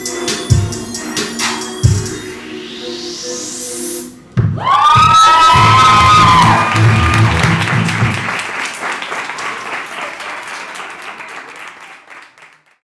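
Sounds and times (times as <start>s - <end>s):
music: 0.0s - 8.4s
audience applauding: 4.9s - 12.8s.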